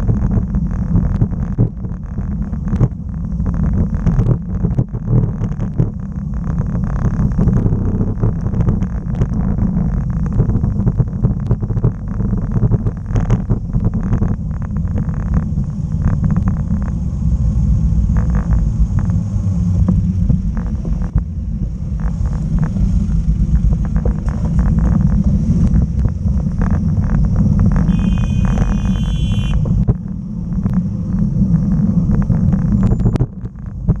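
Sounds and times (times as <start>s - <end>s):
wind rumbling on microphone: 0.0s - 34.0s
high ringing tone: 27.9s - 29.8s.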